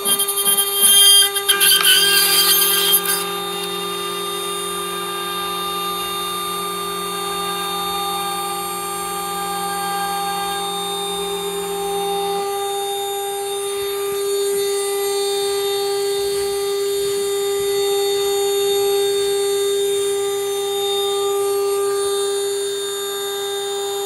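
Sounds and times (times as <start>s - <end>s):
router bit cutting wood: 0.0s - 17.9s
router spindle whine: 0.0s - 24.0s.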